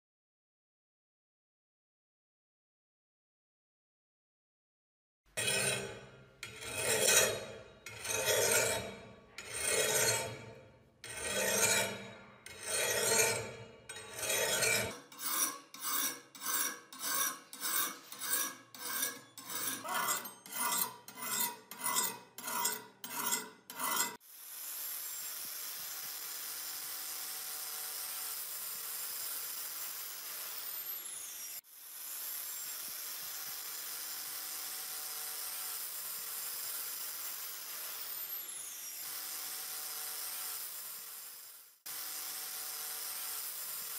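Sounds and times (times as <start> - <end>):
file rasping on steel blade: 5.4 - 24.2.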